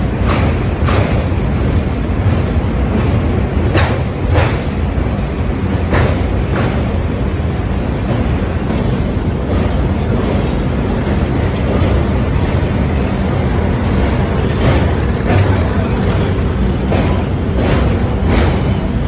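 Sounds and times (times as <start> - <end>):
train wheels rumbling on bridge: 0.0 - 19.0.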